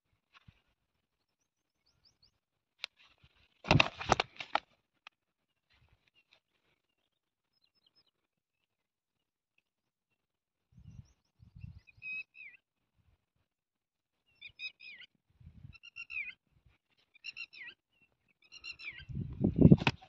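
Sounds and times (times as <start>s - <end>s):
bird chirping: 10.8s - 12.6s, 14.2s - 19.2s.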